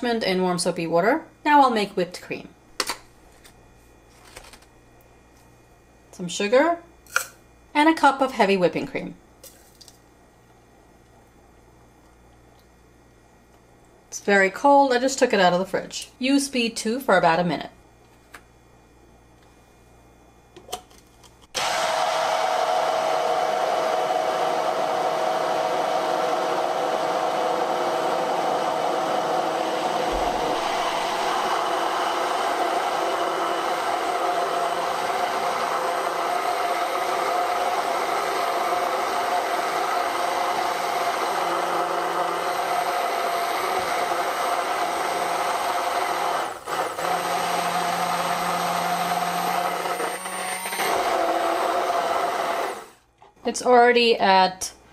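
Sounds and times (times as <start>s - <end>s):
hand blender motor whining: 21.6s - 53.0s.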